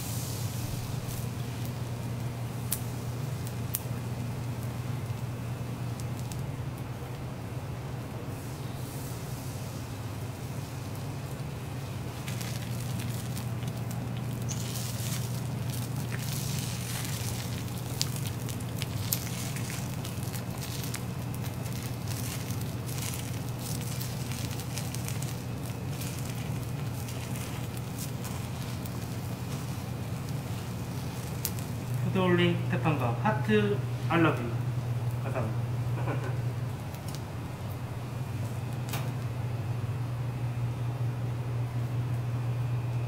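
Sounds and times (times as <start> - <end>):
egg sizzling on a hot griddle: 0.0 - 32.3, 36.4 - 37.4
steady low hum: 0.0 - 43.0.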